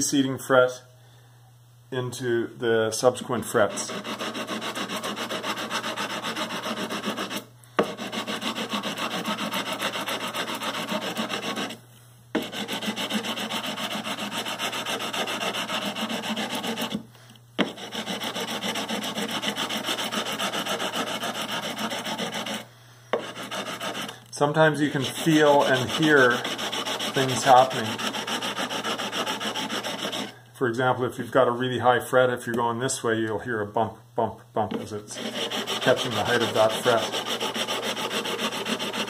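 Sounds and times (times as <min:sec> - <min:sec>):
sandpaper scraping metal frets: 0:03.5 - 0:11.8, 0:12.4 - 0:17.0, 0:17.6 - 0:22.6, 0:23.2 - 0:30.4, 0:35.1 - 0:39.0.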